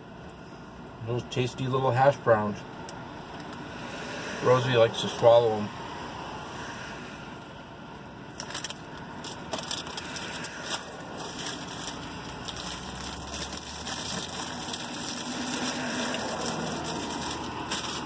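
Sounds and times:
crunchy food being chewed: 0:08.4 - 0:18.0
paper bag crackling: 0:08.4 - 0:18.0.

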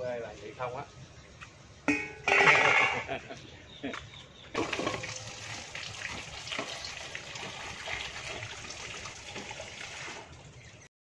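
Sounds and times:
water pouring and splashing: 0:04.6 - 0:10.9.

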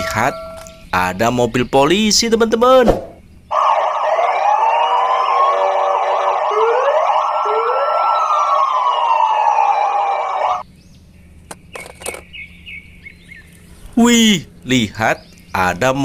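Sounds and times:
police sirens wailing: 0:03.5 - 0:10.6.

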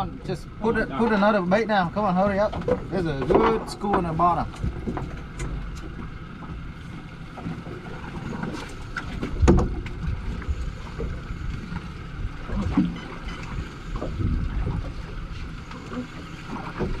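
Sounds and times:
boat engine rumble: 0:00.0 - 0:17.0
wind noise: 0:09.2 - 0:15.3.

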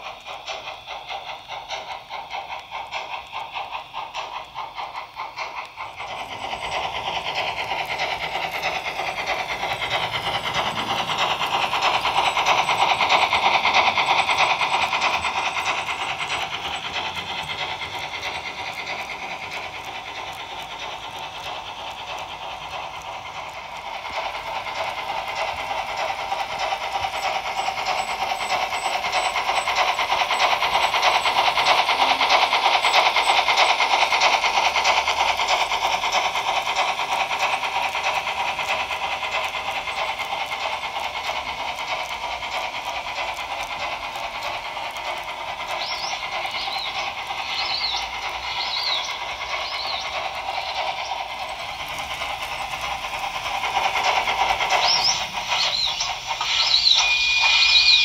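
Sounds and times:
model train wheels clicking: 0:00.0 - 0:58.0
high-pitched squeals: 0:54.7 - 0:58.0.

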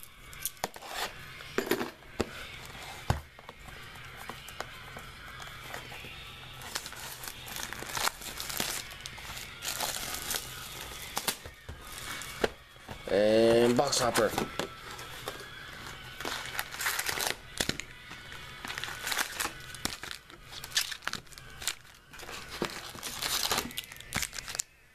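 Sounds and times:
plastic wrap crinkling and tearing: 0:06.6 - 0:12.4, 0:13.3 - 0:24.8.

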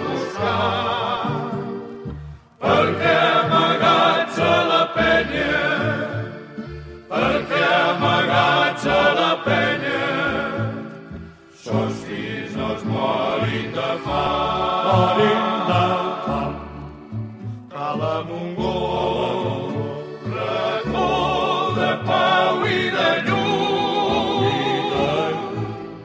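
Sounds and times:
voices singing together: 0:00.0 - 0:26.0.

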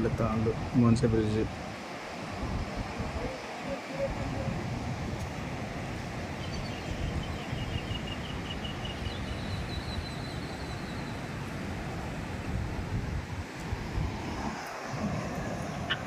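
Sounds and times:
wind buffeting microphone: 0:00.0 - 0:16.0
faint high chirp: 0:06.4 - 0:11.3.

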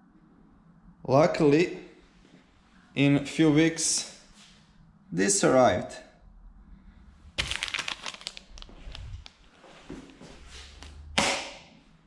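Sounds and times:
plastic bag crinkling: 0:07.3 - 0:09.4.

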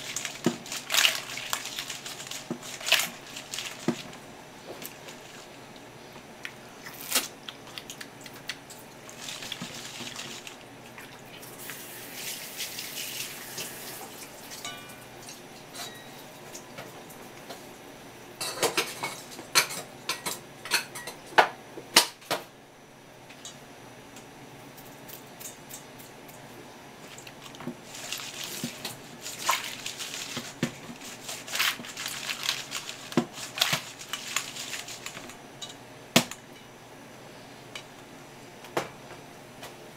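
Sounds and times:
hands sloshing food in bowl: 0:00.0 - 0:04.2, 0:07.8 - 0:11.6, 0:27.0 - 0:35.3.

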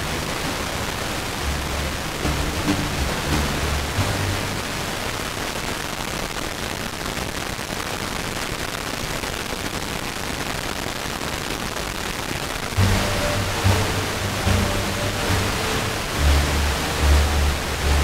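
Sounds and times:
radio static hiss: 0:00.0 - 0:18.0
faint low music notes: 0:01.3 - 0:05.2, 0:12.8 - 0:18.0.

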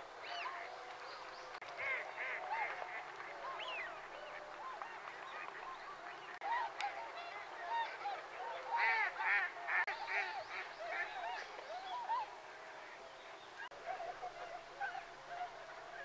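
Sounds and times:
flock of waterfowl calling: 0:00.0 - 0:16.0.

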